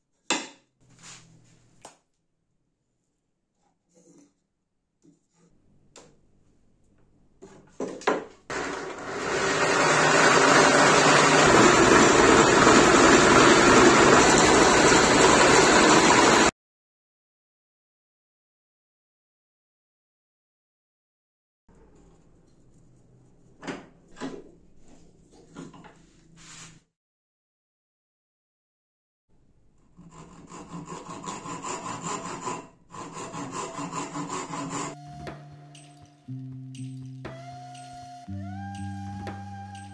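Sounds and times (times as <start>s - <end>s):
power tool rasping wood: 8.5s - 16.5s, 29.9s - 35.4s
hand saw cutting wood: 29.9s - 35.3s.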